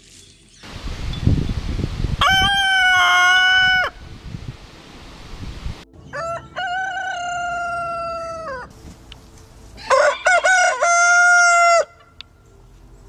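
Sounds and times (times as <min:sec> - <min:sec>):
rooster crowing: 0:02.2 - 0:04.0, 0:06.1 - 0:08.7, 0:09.8 - 0:12.1.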